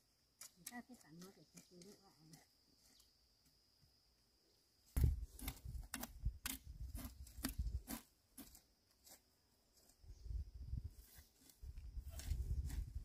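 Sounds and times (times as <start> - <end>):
hoes chopping dry soil: 5.0 - 10.0, 11.2 - 13.0.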